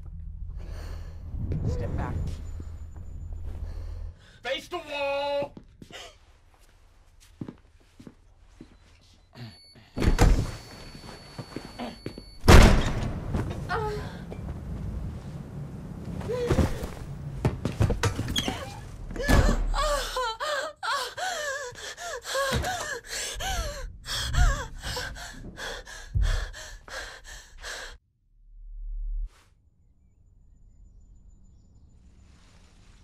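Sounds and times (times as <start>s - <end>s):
dull thuds: 16.2s - 19.8s
woman wailing and sobbing: 19.2s - 27.9s.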